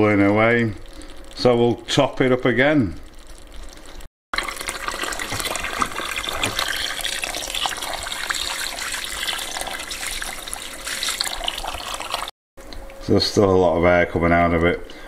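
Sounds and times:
water pouring into bucket: 3.1s - 12.3s.

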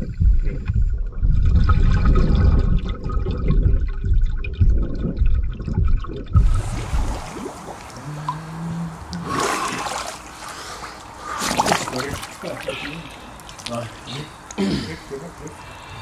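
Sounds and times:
underwater bubbling and rumbling: 0.0s - 10.4s
hiss of water: 6.4s - 13.6s.

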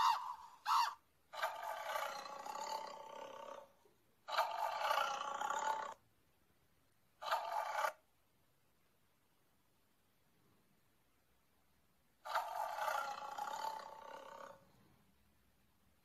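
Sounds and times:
creature roaring: 0.0s - 3.7s, 4.3s - 6.0s, 12.3s - 14.6s.

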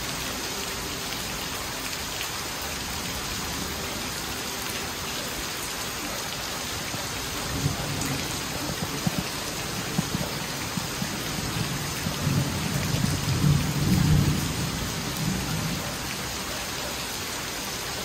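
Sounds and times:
heavy rain on paving: 0.0s - 18.0s
rolling thunder rumble: 6.9s - 16.2s.

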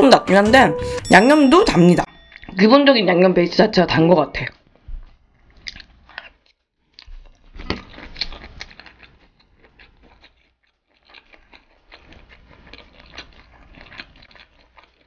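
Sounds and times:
wet chewing: 4.5s - 15.0s.

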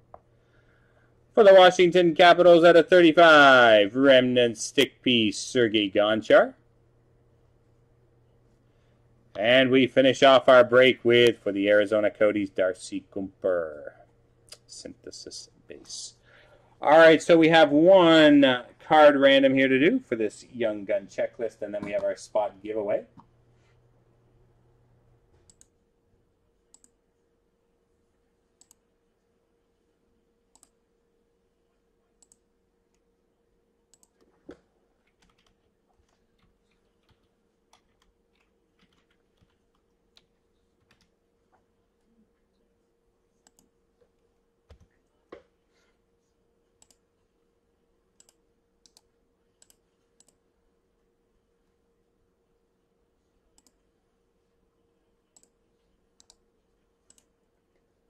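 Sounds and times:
faint steady hum: 0.0s - 58.0s
keyboard and mouse clicks: 33.9s - 41.1s, 43.4s - 43.7s, 53.6s - 53.8s, 56.2s - 56.4s.

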